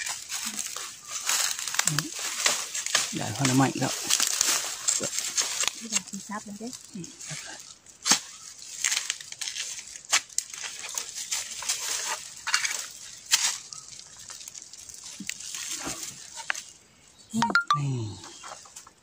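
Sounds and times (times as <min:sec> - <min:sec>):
dry leaves rustling: 0:00.0 - 0:17.3, 0:18.3 - 0:19.0
machete chopping into soil: 0:08.0 - 0:10.6.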